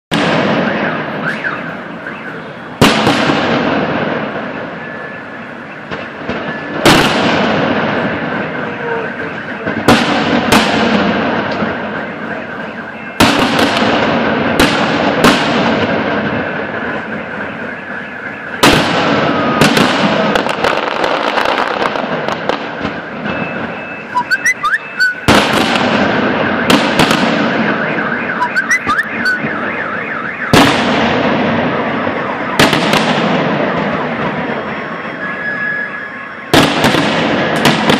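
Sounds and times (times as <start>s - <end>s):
fireworks crackling: 0.1s - 29.7s, 30.5s - 37.9s
fireworks bangs with rolling echo: 0.1s - 37.9s.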